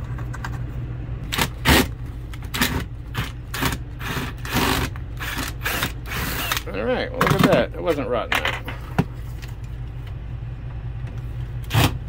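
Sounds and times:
steady low hum: 0.0 - 12.0
cordless driver: 2.5 - 6.7.

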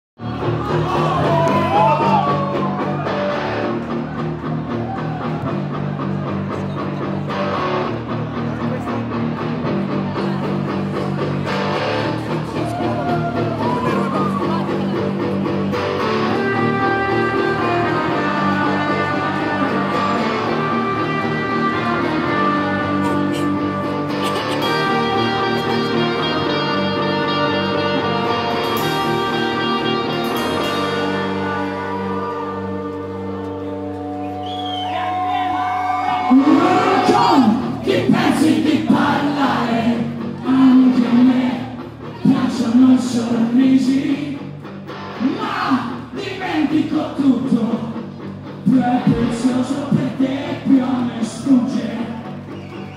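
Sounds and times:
bass guitar line: 0.2 - 52.9
electric guitars: 0.2 - 52.9.

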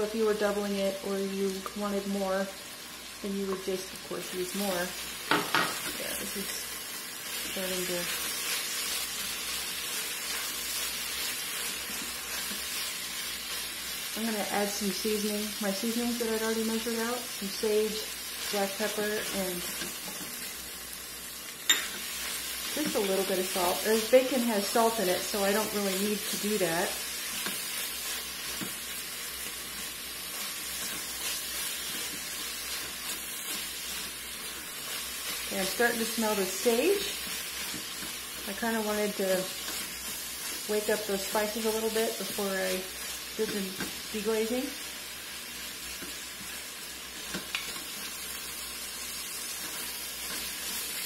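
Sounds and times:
food sizzling in a pot: 0.0 - 51.0
spatula stirring and scraping: 4.5 - 14.3, 21.7 - 51.0.

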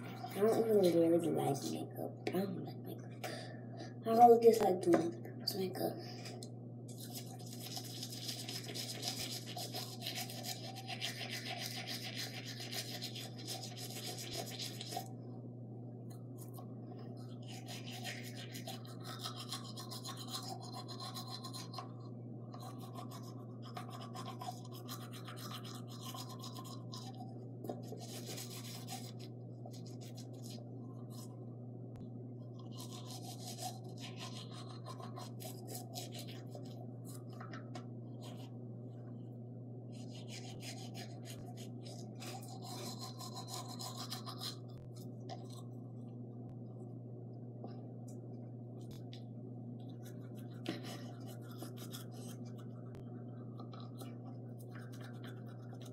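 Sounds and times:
toothbrush scrubbing teeth: 0.0 - 1.9, 6.9 - 15.2, 16.4 - 31.3, 32.6 - 37.4, 39.9 - 45.7, 49.8 - 55.9
steady low hum: 0.0 - 55.9.

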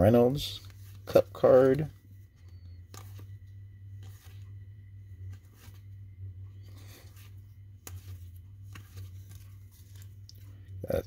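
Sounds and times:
steady low hum: 0.0 - 11.0
cards sliding and flicking: 0.6 - 4.6, 5.2 - 6.0, 6.6 - 10.6.

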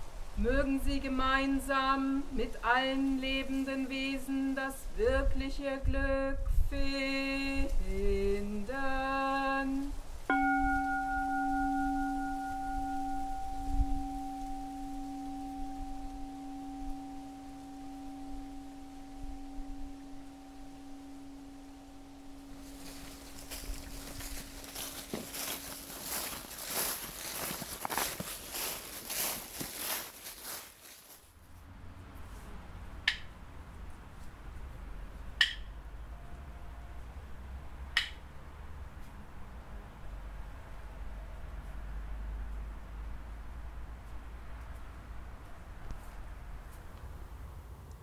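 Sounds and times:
rustling: 7.0 - 31.6
bowl bell ringing: 10.3 - 28.9.

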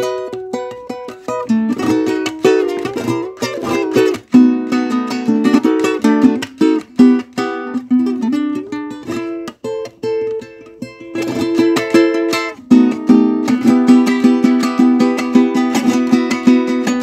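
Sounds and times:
plucked string music: 0.0 - 17.0.

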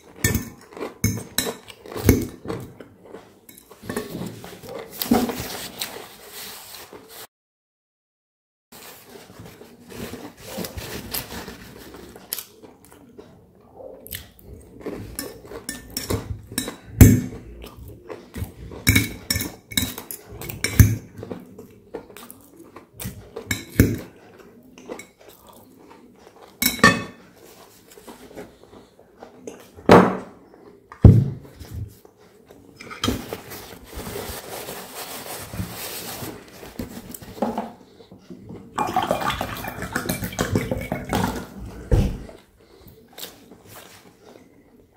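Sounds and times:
cutlery clinking on a plate: 0.2 - 2.3, 15.1 - 17.3, 18.8 - 21.0, 26.6 - 27.2
close-up chewing: 20.2 - 26.6.

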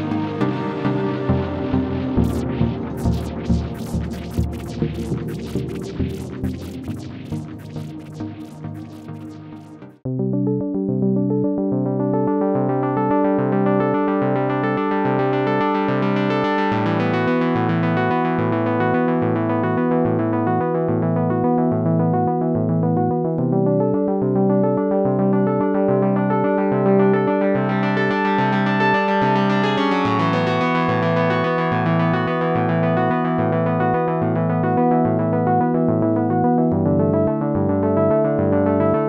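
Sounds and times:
synthesizer bass notes: 0.0 - 10.6.

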